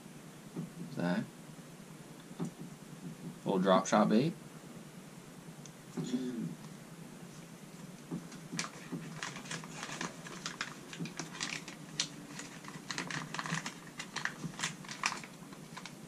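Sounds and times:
plastic package crinkling: 8.3 - 16.0.

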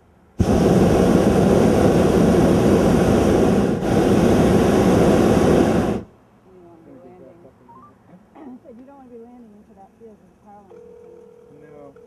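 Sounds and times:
propane burner blasting: 0.4 - 6.1.

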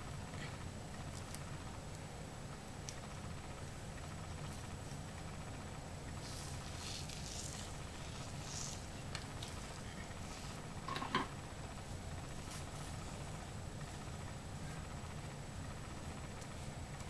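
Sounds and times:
steady low hum: 0.0 - 17.0
hands rubbing hair: 6.2 - 10.6.

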